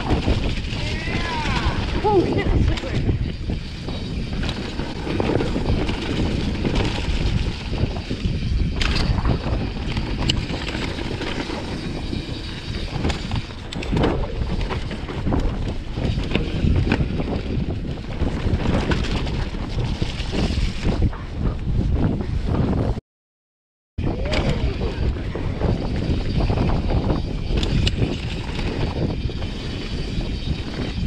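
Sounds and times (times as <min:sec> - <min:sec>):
tyres rumbling on dirt: 0:00.0 - 0:20.9
wind buffeting microphone: 0:00.0 - 0:23.0, 0:24.0 - 0:31.0
bike clicks and knocks: 0:02.7 - 0:21.6.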